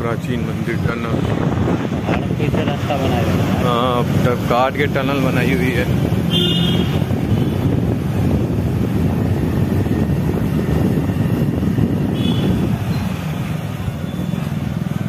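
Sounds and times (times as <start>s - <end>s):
motorcycle engine and road noise: 0.0s - 15.0s
wind on microphone: 0.5s - 3.6s, 5.3s - 14.0s.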